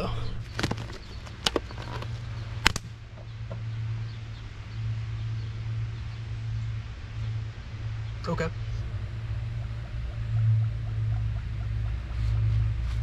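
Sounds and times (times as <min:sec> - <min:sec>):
steady low hum: 0:00.0 - 0:13.0
sharp clicks: 0:00.6 - 0:02.9.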